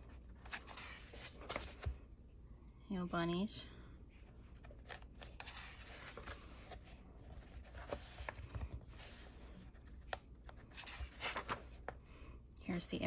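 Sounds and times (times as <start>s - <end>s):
paper rustling: 0.0s - 2.0s, 4.5s - 12.0s.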